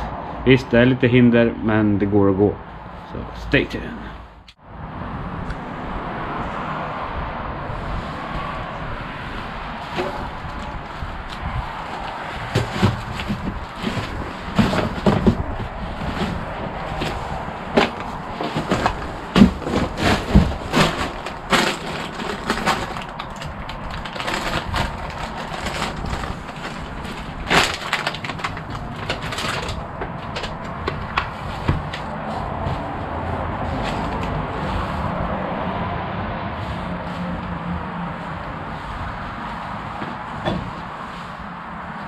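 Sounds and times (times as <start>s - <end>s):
footsteps through debris: 9.5s - 35.0s
wood snapping and rubble clattering: 9.9s - 32.1s.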